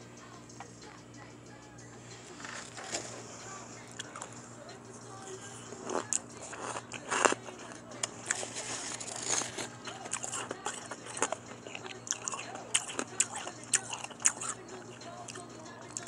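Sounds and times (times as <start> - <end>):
person crunching ice: 5.6 - 14.6.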